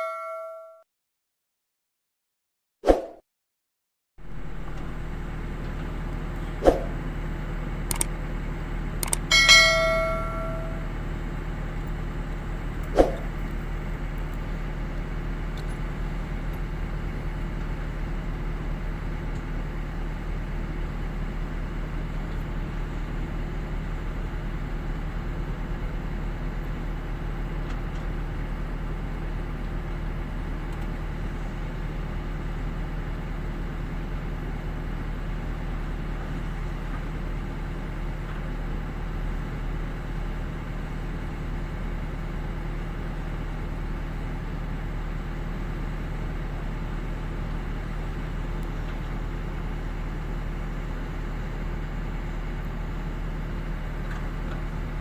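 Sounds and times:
sharp metallic clangs: 0.0s - 0.8s, 9.3s - 10.9s
diesel engine humming: 4.2s - 55.0s.

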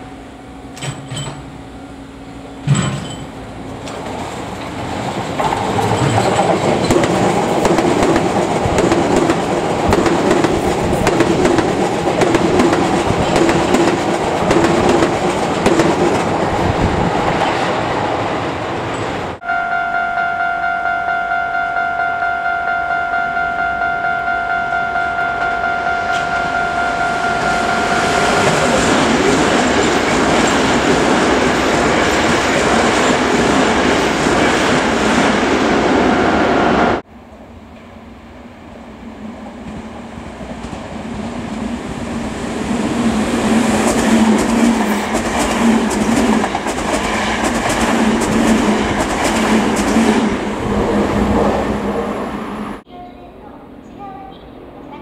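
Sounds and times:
electric train running: 0.0s - 17.6s, 22.2s - 36.8s, 40.6s - 51.9s
train wheels clattering over joints: 2.6s - 16.3s
steady high tone: 19.4s - 30.1s.

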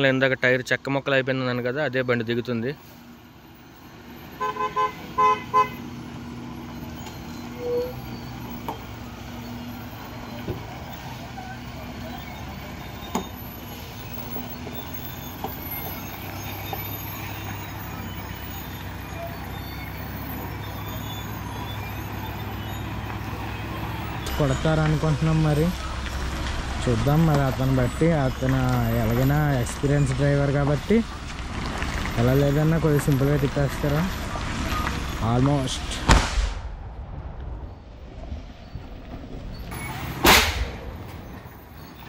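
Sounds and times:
truck engine rumble: 0.0s - 42.0s
truck horn toots: 4.3s - 6.1s, 7.4s - 8.2s.

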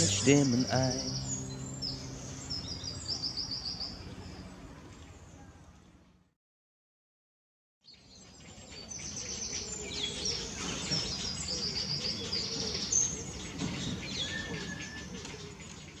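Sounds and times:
songbirds singing: 0.0s - 5.9s, 7.8s - 16.0s
low outdoor hum: 0.0s - 6.3s.

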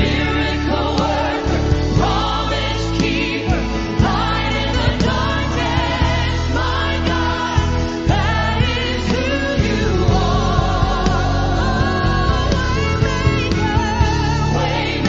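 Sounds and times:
band playing gospel music: 0.0s - 15.0s
woman singing with vibrato: 6.5s - 15.0s.

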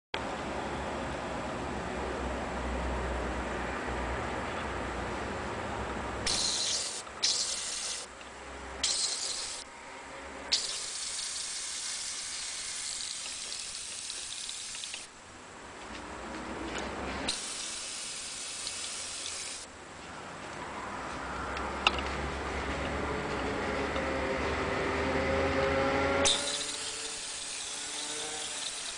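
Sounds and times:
spray paint hissing: 6.2s - 8.1s, 8.8s - 9.6s, 10.5s - 15.1s, 17.3s - 19.7s, 26.2s - 28.9s.

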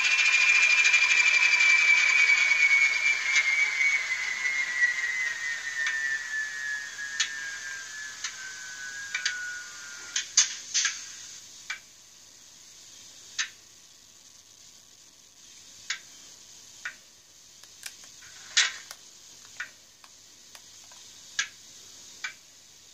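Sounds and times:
faint hiss: 0.0s - 22.9s
sharp ticks and clicks: 18.8s - 21.6s.

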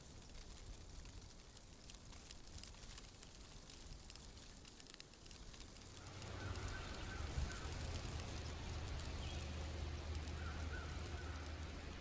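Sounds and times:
steady low rumble: 5.9s - 12.0s.

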